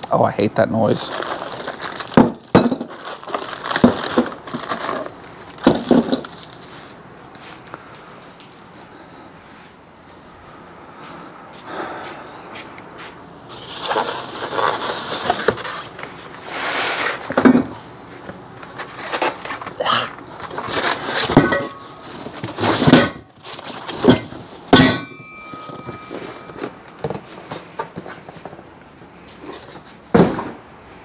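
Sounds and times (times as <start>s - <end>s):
metal parts clanking on wood: 1.3s - 6.6s, 18.6s - 28.4s
rustling: 13.0s - 17.4s
styrofoam and cardboard scraping: 13.5s - 17.4s, 18.8s - 24.2s
metal ringing: 24.1s - 27.0s.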